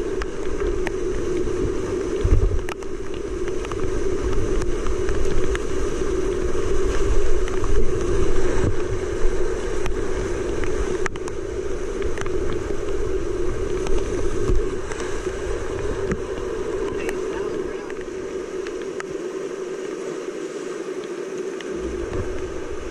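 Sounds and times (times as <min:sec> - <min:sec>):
whitewater rapids rushing: 0:14.3 - 0:22.9.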